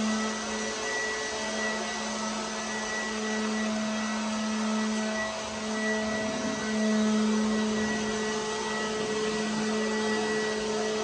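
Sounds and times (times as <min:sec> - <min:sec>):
leaf blower motor whine: 0:00.0 - 0:11.0
rush of air: 0:05.9 - 0:09.4.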